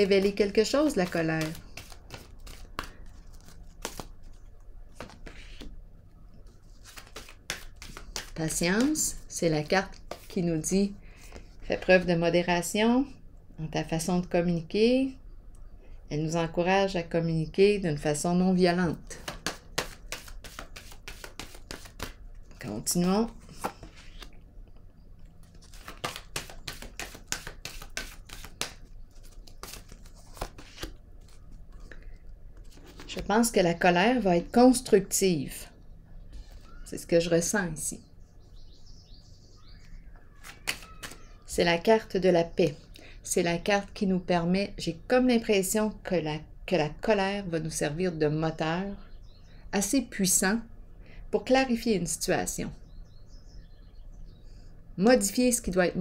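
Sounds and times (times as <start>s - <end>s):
cards clicking and rustling on table: 0.2s - 4.4s, 6.8s - 9.0s, 19.2s - 22.2s, 25.4s - 31.4s, 40.4s - 41.3s.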